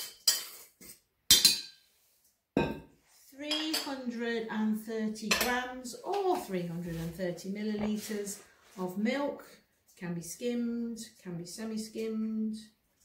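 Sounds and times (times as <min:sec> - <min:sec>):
woman speaking: 0:03.3 - 0:12.7.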